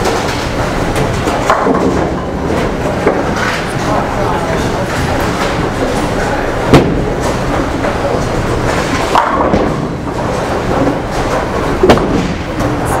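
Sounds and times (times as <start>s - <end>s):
bowling alley rumble: 0.0s - 13.0s
bowling ball crashing into pins: 0.9s - 3.6s, 6.7s - 7.5s, 8.6s - 12.8s.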